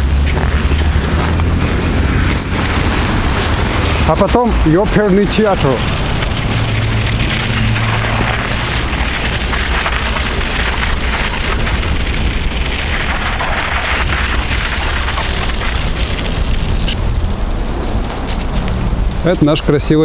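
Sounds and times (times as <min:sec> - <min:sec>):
wind on microphone: 0:00.0 - 0:04.9
bike tyres rolling on snow: 0:00.0 - 0:20.0.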